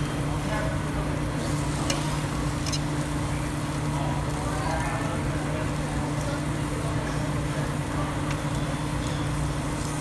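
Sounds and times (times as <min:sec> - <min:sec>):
low machine hum: 0:00.0 - 0:10.0
beef sizzling on grill plate: 0:00.5 - 0:10.0
tongs clicking on plate: 0:02.6 - 0:02.9.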